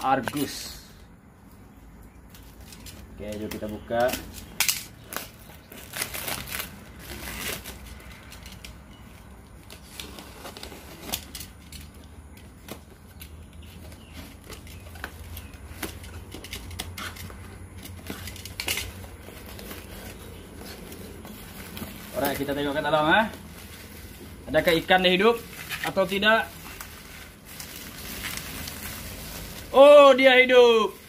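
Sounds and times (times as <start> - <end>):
plastic wrapping rustling: 2.2 - 31.0
knife cutting packing tape: 3.3 - 8.8.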